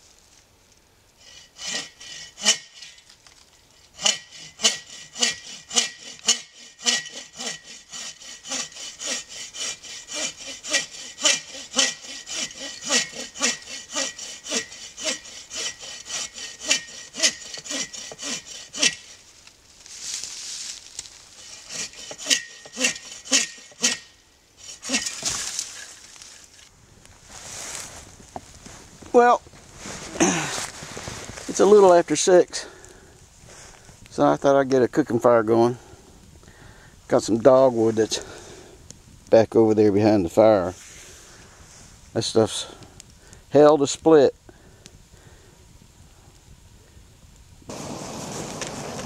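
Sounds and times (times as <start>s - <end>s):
hand saw cutting wood: 1.2s - 3.0s, 3.9s - 19.2s, 21.3s - 26.2s
short rustle: 19.0s - 22.0s, 24.8s - 32.2s.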